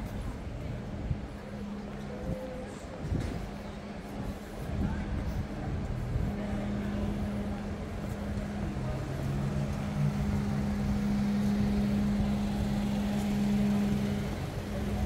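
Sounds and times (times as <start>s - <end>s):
city street noise: 0.0s - 15.0s
vehicle engine idling: 5.7s - 15.0s.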